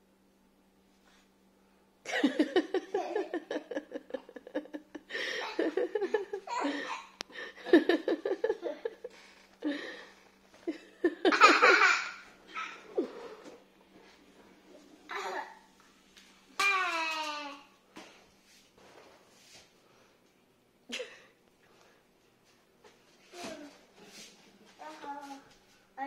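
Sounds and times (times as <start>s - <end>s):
laughter in rapid bursts: 2.1s - 6.8s.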